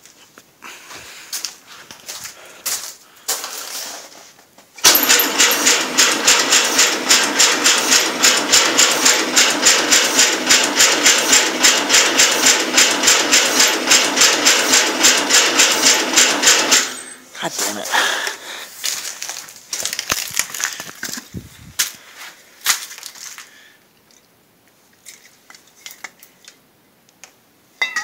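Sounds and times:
tractor engine starting and running: 4.8 - 21.9.

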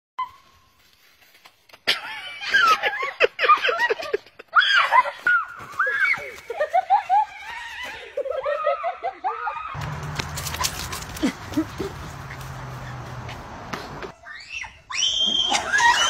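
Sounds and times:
high-pitched laughter and shrieks: 1.9 - 9.8, 14.2 - 16.0.

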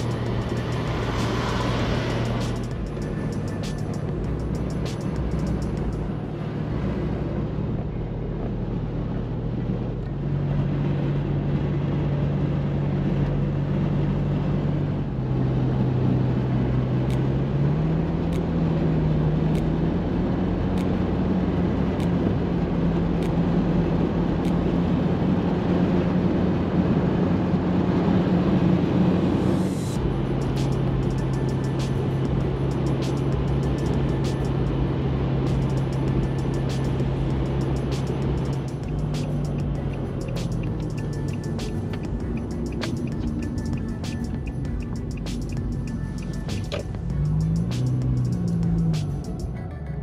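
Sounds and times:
low hum changing pitch: 0.0 - 9.5
road and wind noise: 0.0 - 50.0.

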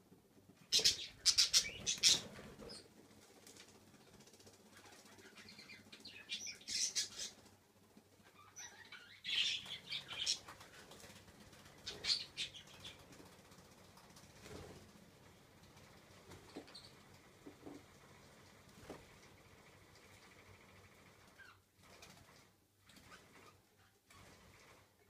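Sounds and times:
bird wings fluttering: 9.7 - 17.0, 17.6 - 24.9.

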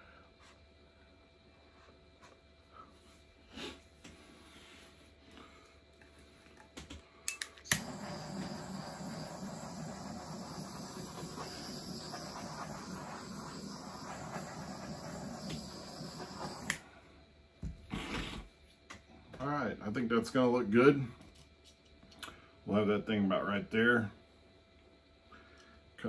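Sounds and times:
torch igniter clicks: 7.3 - 16.9
torch flame hissing: 7.6 - 17.1.

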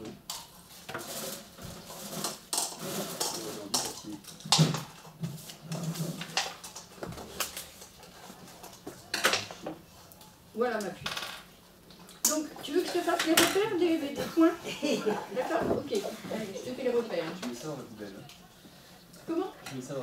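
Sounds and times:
objects clattering on tables: 0.0 - 9.8, 11.0 - 11.6, 12.8 - 13.8, 15.5 - 16.4.

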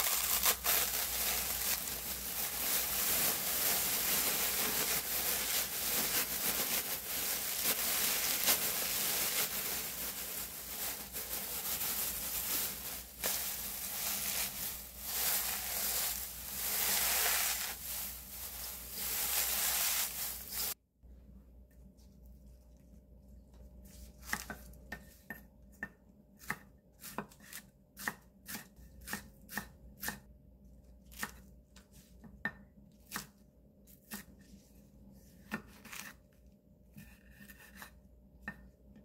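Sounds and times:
dry seaweed sheets crumbling: 0.0 - 20.8.

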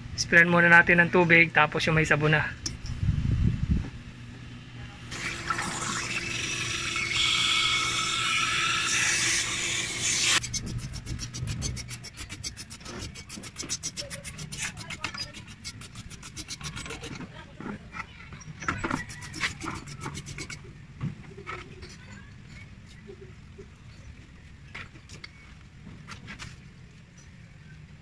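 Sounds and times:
hose spraying water: 5.1 - 17.1.

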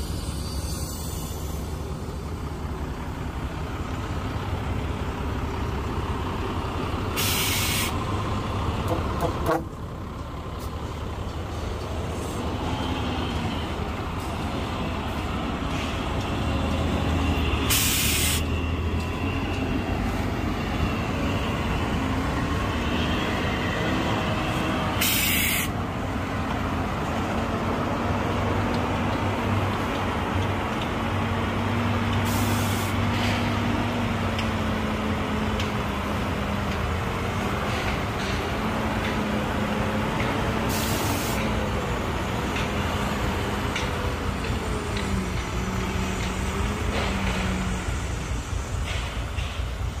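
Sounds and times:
heavy diesel engines running: 0.0 - 50.0
air brake hisses: 7.2 - 8.0, 17.7 - 18.5, 25.0 - 25.8, 32.2 - 33.5, 40.6 - 41.5.

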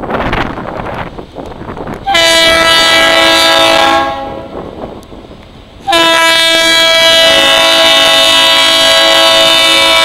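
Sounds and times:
locomotive air horn blasts: 2.0 - 4.6, 5.8 - 10.0.

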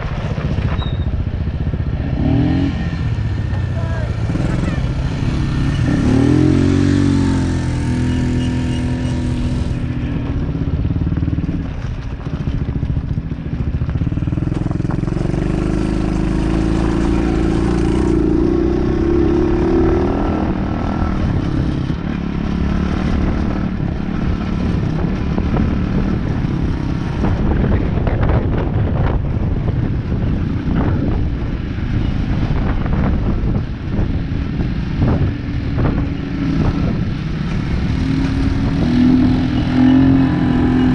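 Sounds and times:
off-road vehicle engine revving: 2.0 - 9.8, 14.2 - 27.5, 35.0 - 40.9.

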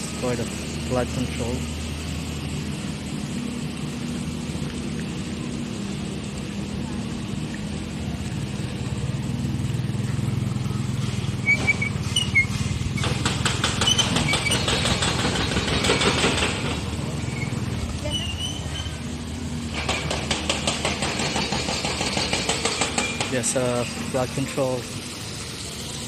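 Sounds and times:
small motorcycle engines running: 0.0 - 26.0
motorcycle passing by: 7.8 - 14.6.

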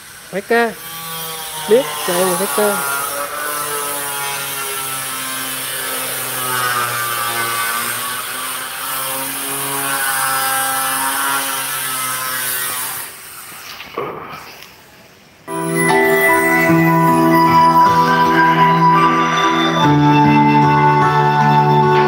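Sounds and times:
karaoke speaker playing buzzy melody: 15.5 - 22.0.

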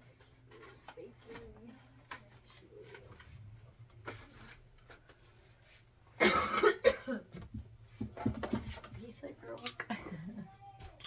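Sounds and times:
woman coughing: 6.2 - 7.4.

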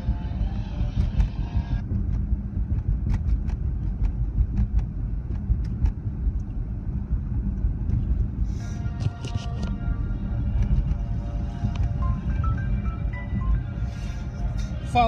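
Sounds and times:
car cabin road rumble: 0.0 - 15.0.

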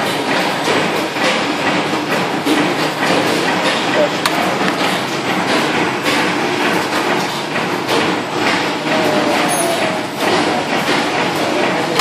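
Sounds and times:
spring-forming machine clattering: 0.0 - 12.0.

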